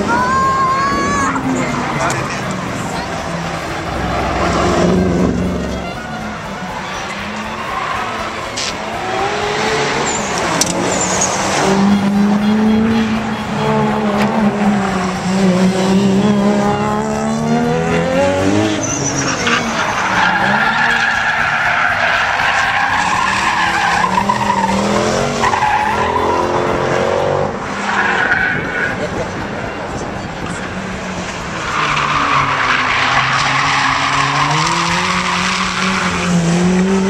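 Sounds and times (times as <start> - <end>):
tyres squealing: 0.0 - 26.9
car engine revving: 0.0 - 37.0.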